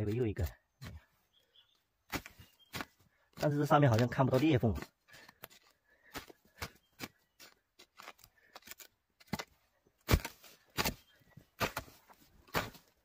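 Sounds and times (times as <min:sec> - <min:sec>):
hoe chopping and scraping soil: 0:02.0 - 0:13.0
dirt scattering: 0:09.2 - 0:13.0.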